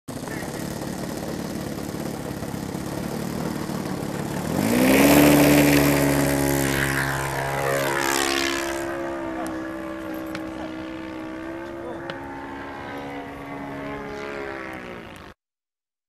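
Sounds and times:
model airplane engine revving: 0.1s - 15.4s.

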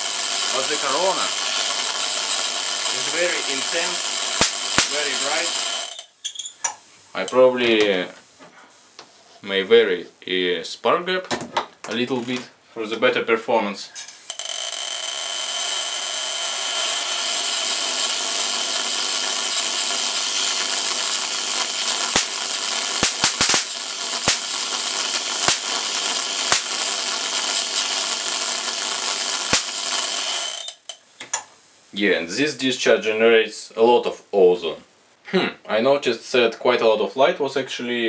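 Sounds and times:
sharp spark cracks: 0.0s - 6.2s, 14.2s - 31.0s
spark gap buzzing hiss: 0.0s - 9.4s, 14.1s - 32.1s.

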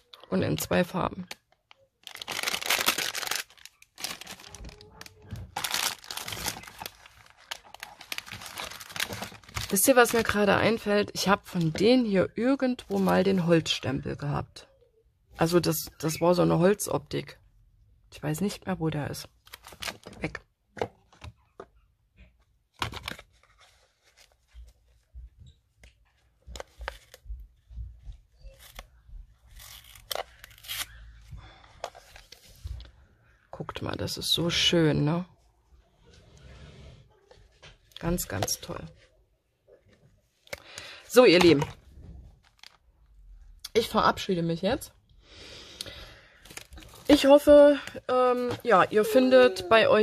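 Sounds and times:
plastic bags crinkling: 0.4s - 10.4s, 42.4s - 42.8s, 46.3s - 49.9s.

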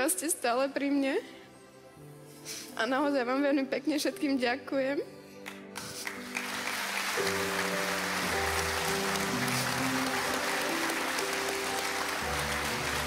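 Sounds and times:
soft background music: 0.0s - 13.0s
studio audience applauding: 5.4s - 13.0s.

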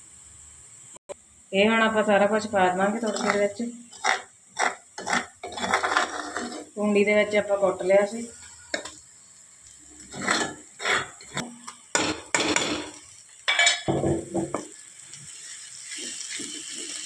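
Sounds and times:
hot oil sizzling: 0.0s - 17.0s
spatula scraping metal pan: 3.0s - 9.0s, 10.0s - 13.8s.

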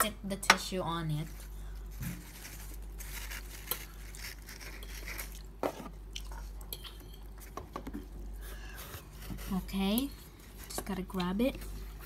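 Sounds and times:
paper napkin crackling: 1.2s - 5.5s
person chewing: 1.9s - 8.4s.

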